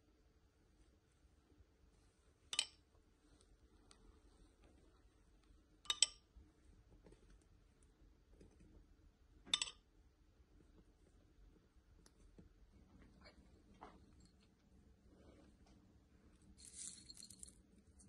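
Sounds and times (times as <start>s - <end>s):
metal spoon clinking on bowl: 2.6s - 2.8s, 5.9s - 6.2s, 9.5s - 9.8s.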